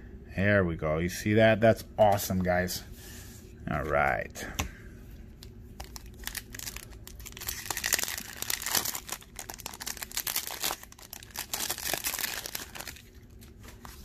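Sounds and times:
foil wrapper crinkling: 0:05.8 - 0:14.0.

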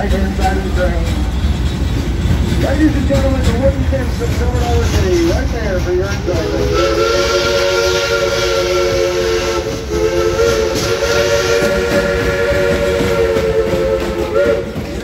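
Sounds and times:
hiss and rumble of train: 0:00.0 - 0:15.0
steam locomotive chime whistle: 0:06.4 - 0:15.0.

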